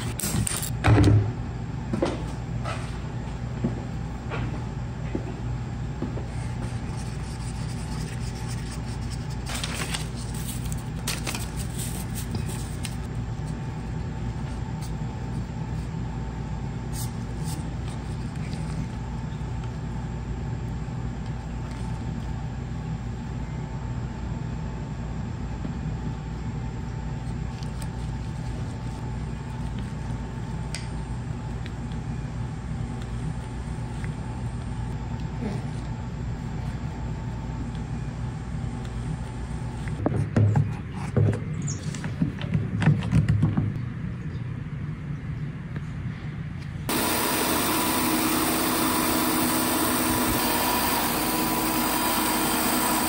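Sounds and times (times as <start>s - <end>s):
steady low hum: 0.0s - 53.0s
gloved hands rustling paper: 6.9s - 13.7s.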